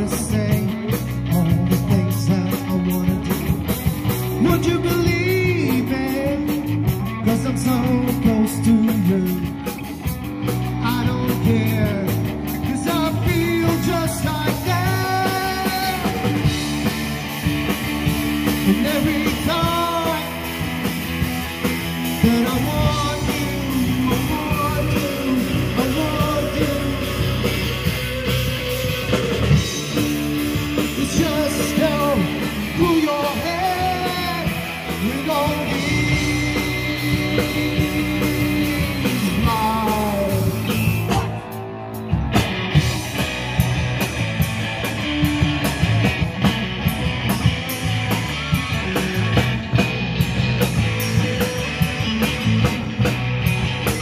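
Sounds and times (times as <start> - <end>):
person singing: 0.0 - 3.6, 4.3 - 10.0, 10.6 - 16.6, 18.4 - 20.7, 22.0 - 27.8, 29.8 - 42.2
rock band playing live: 0.0 - 54.0.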